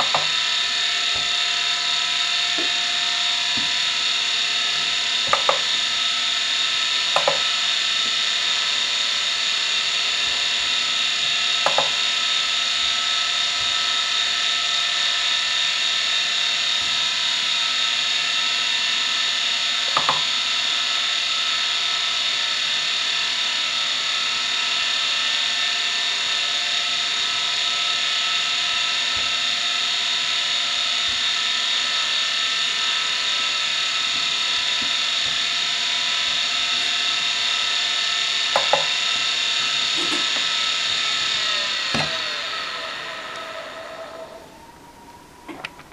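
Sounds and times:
hard drive high-pitched whine: 0.0 - 45.9
hard drive seek clicks: 7.1 - 8.2, 10.3 - 13.9.

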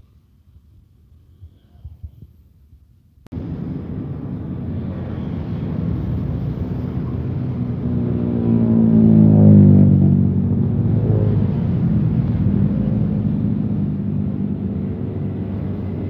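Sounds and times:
steady droning hum: 3.3 - 16.0
train wheels rumbling on rails: 3.4 - 8.8.

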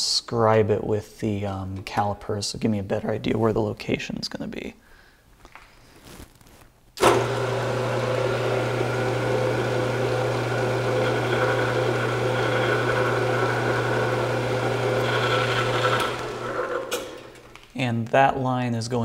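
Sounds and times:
metal lathe humming and whining: 7.0 - 17.6.

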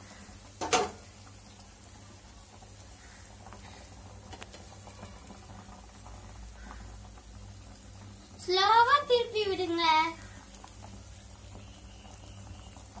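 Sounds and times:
water bubbling in a pan: 0.0 - 13.0
small ticks: 4.3 - 5.0.

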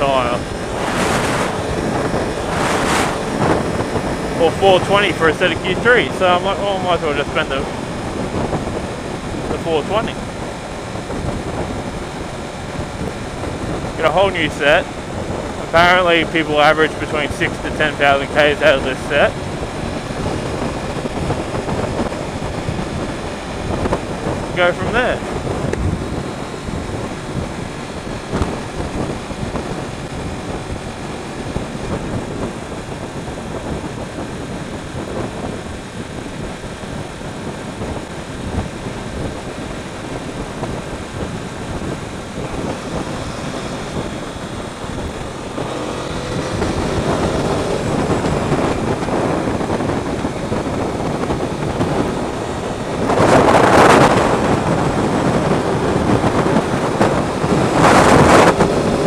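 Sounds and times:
motorcycle engine: 0.0 - 59.0
wind and road noise: 0.0 - 59.0.

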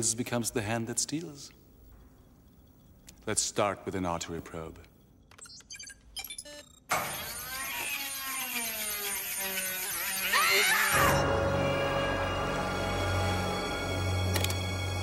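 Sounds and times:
keypad beeps: 5.3 - 6.9.

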